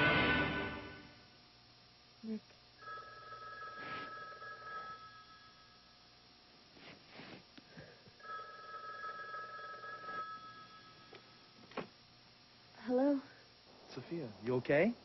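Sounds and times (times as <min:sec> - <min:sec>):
telephone ringing: 0:02.8 - 0:05.9, 0:08.2 - 0:11.5
faint rustling: 0:06.6 - 0:08.2.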